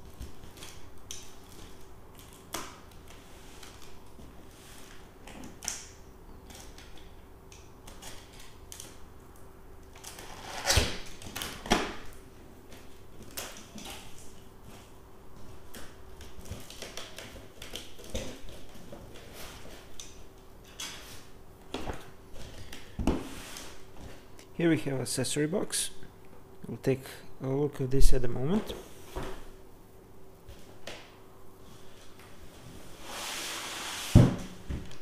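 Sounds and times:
utility knife cutting packing tape: 10.0s - 11.8s.

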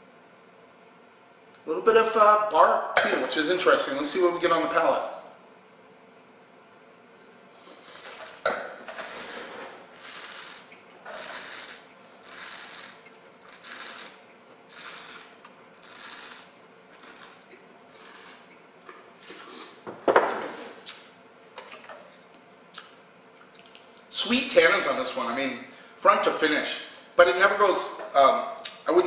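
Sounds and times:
person slurping wine: 7.6s - 9.6s.

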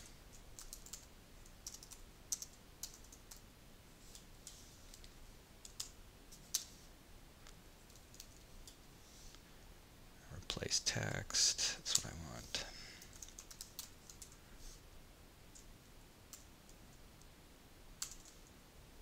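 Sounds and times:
typing on computer keyboard: 0.3s - 3.4s, 4.1s - 6.7s, 7.9s - 8.8s, 13.0s - 14.4s, 18.0s - 18.5s.

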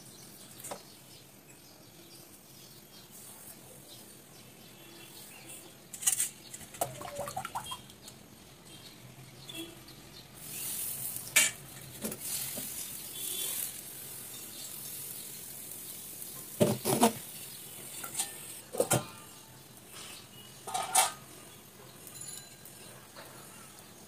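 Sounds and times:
batter sizzling on a hot pan: 9.5s - 24.0s.

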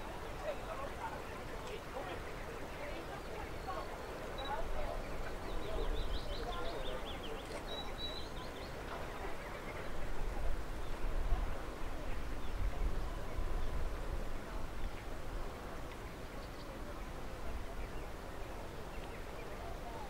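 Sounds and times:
bird chirping: 3.0s - 8.8s.

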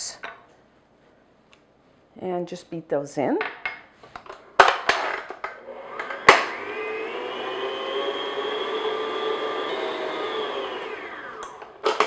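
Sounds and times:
stand mixer motor running: 5.8s - 11.6s.

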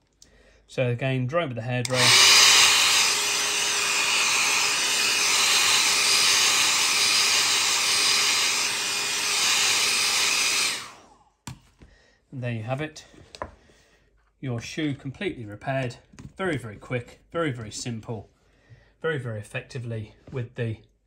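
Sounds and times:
hairdryer blowing: 1.8s - 11.1s.

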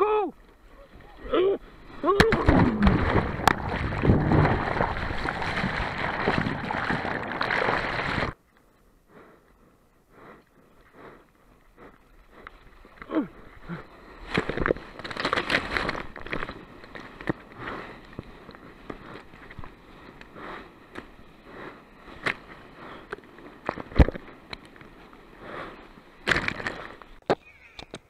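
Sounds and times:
water rushing against camera: 0.8s - 8.4s
waves splashing: 0.9s - 8.4s.

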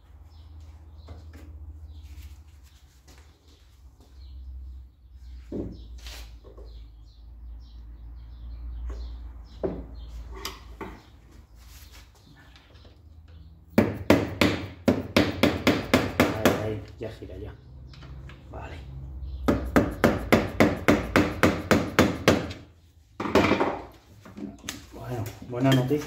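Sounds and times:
loud sharp rapid knocks: 13.8s - 16.6s, 19.5s - 22.5s.

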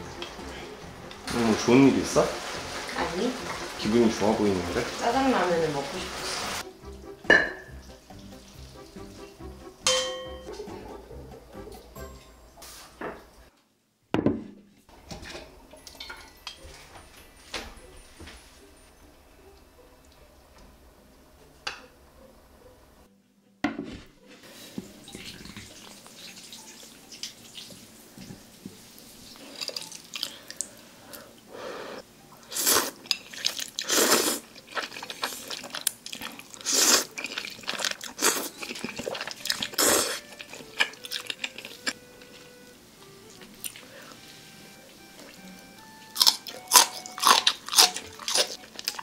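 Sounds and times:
person slurping and chewing noodles: 29.4s - 31.2s, 32.5s - 42.0s, 46.2s - 49.0s
loud wet slurps: 32.6s - 40.2s.

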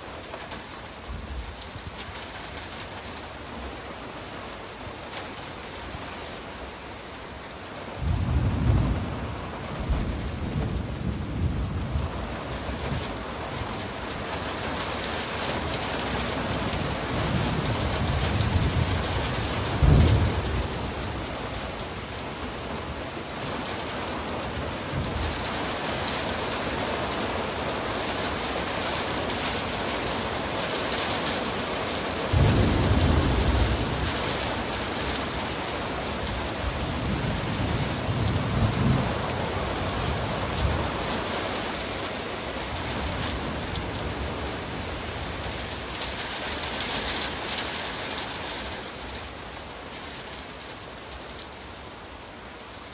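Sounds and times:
steady rain: 0.0s - 52.9s
thunder rumbling and cracking: 7.9s - 23.6s, 32.2s - 42.0s.

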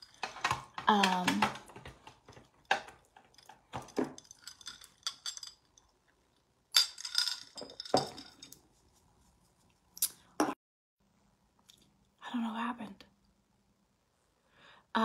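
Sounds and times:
glass bottles clinking together: 2.7s - 5.7s, 6.8s - 8.5s.

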